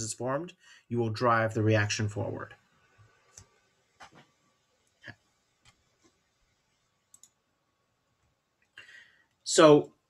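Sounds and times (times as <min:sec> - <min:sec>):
faint sharp clicks: 0:07.1 - 0:07.4.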